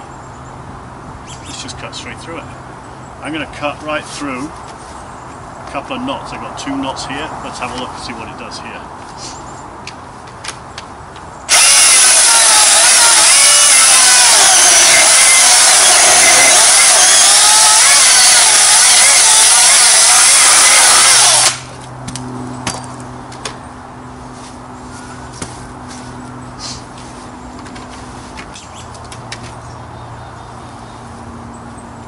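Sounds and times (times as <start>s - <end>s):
chainsaw cutting through log: 11.5s - 21.7s.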